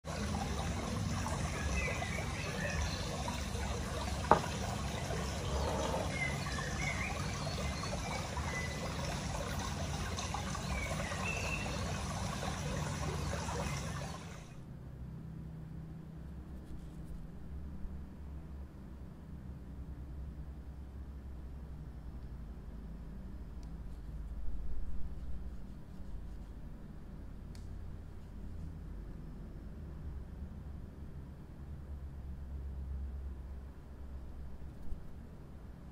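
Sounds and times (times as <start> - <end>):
water trickling: 0.0 - 14.6.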